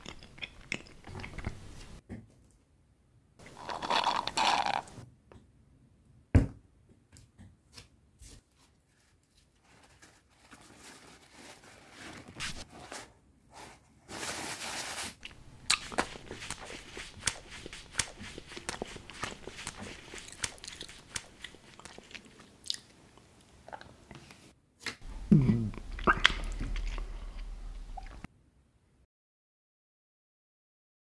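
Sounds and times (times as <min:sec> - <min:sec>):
slurp through a straw: 0:03.5 - 0:05.0
paper napkin rustling: 0:08.3 - 0:22.1
paper crumpling: 0:08.9 - 0:13.1, 0:14.1 - 0:22.2.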